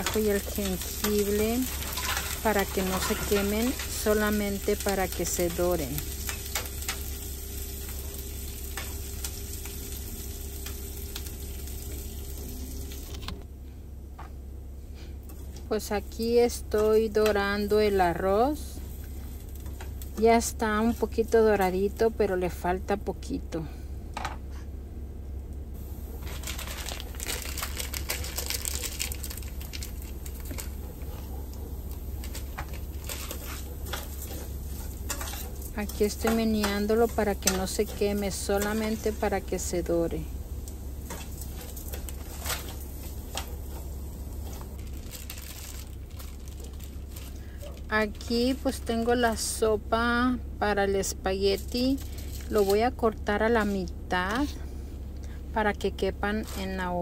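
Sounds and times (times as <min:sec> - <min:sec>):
vegetables sizzling in a skillet: 0:00.0 - 0:13.1, 0:15.9 - 0:22.2, 0:25.8 - 0:47.4
rice crackling in hot oil: 0:00.0 - 0:13.4, 0:15.2 - 0:22.2, 0:25.8 - 0:49.6, 0:51.0 - 0:54.6
spoon stirring: 0:32.2 - 0:39.3.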